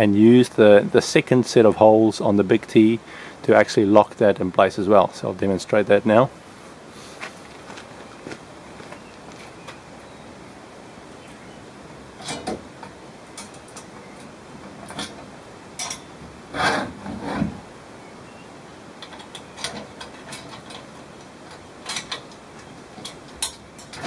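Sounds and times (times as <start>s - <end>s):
metal knocks and scrapes: 14.7s - 17.6s
metal rattling clatter: 19.0s - 24.0s.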